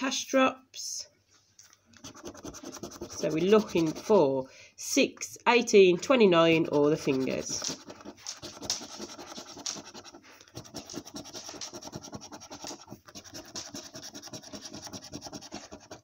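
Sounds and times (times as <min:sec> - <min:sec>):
coin scraping scratchcard: 0:02.0 - 0:04.1, 0:06.6 - 0:16.0.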